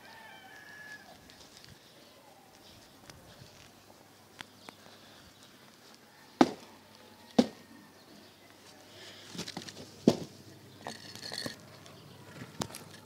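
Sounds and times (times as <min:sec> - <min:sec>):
loud sharp knocks: 0:06.4 - 0:06.6.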